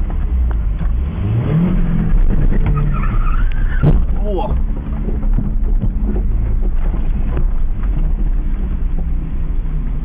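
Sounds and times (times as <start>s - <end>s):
car engine and road noise: 0.0s - 10.0s.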